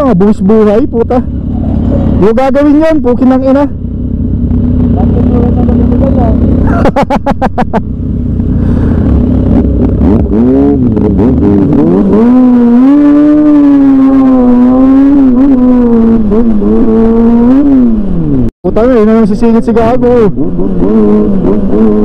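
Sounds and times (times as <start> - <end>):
motorcycle engine accelerating hard: 0.0 - 22.0.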